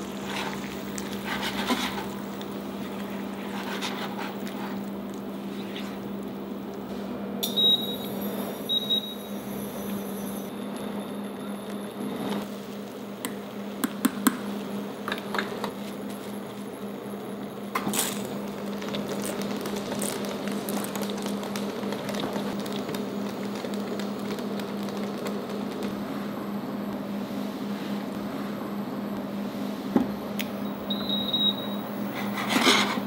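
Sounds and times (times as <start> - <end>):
water boiling in pot: 0.0 - 6.8, 17.7 - 26.5.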